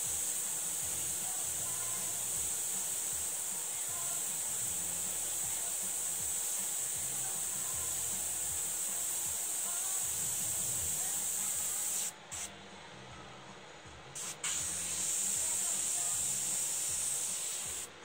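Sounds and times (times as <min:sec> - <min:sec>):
airbrush spraying air hiss: 0:00.0 - 0:12.5, 0:14.2 - 0:18.0
short air puff: 0:14.2 - 0:15.5.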